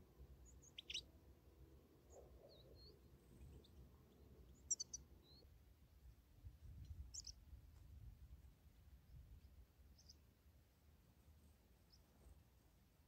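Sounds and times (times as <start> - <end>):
birds chirping: 0.4 - 1.1, 2.1 - 5.5.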